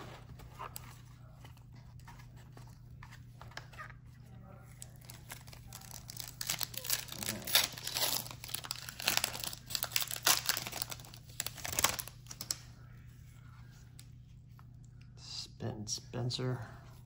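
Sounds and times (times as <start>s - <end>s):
foil wrapper crinkling and tearing: 4.8s - 12.6s.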